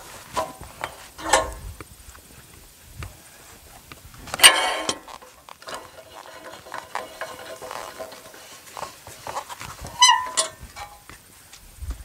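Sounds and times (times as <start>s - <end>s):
light knocks and scrapes: 4.3s - 11.2s
wooden beam squealing on steel: 9.3s - 11.0s.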